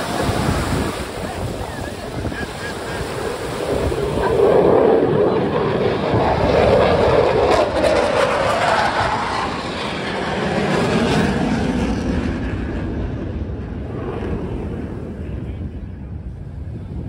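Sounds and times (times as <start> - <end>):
jet roar flyby: 0.0 - 17.0.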